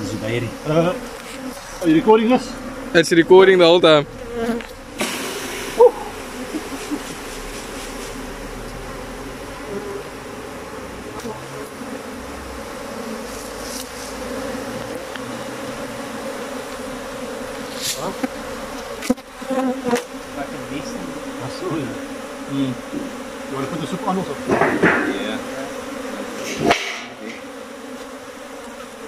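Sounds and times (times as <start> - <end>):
honey bees droning: 0.0 - 29.0
sharp knocks: 24.5 - 25.2.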